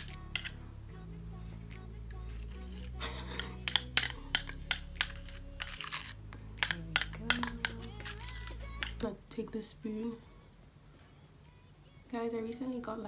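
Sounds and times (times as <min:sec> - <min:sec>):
teaspoon clinking on glass bowl: 0:00.0 - 0:00.6, 0:02.3 - 0:09.0.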